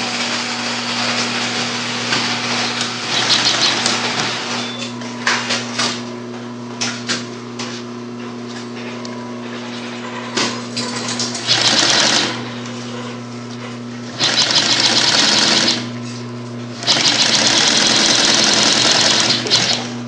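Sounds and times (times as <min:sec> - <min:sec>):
motor humming: 0:00.0 - 0:05.8, 0:11.0 - 0:20.0
sewing machine stitching webbing: 0:03.0 - 0:04.6, 0:11.4 - 0:12.4, 0:14.1 - 0:15.9, 0:16.8 - 0:19.9.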